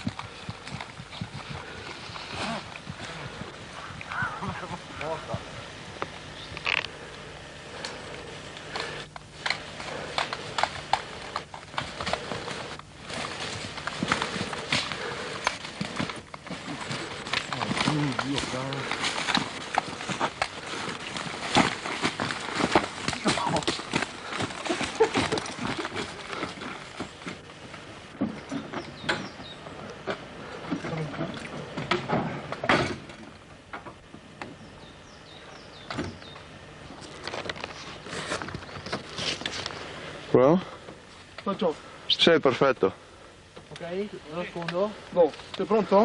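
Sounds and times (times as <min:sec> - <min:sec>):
footsteps through undergrowth: 0:00.0 - 0:30.6, 0:34.6 - 0:40.3
crackles and knocks of branches: 0:00.0 - 0:34.7, 0:35.4 - 0:41.7, 0:43.4 - 0:46.0
gear knocking and rattling: 0:08.7 - 0:27.4.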